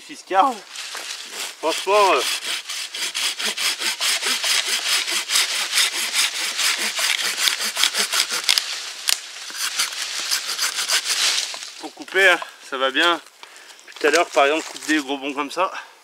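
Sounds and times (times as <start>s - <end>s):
hand saw cutting log: 1.0s - 8.8s, 9.5s - 11.5s.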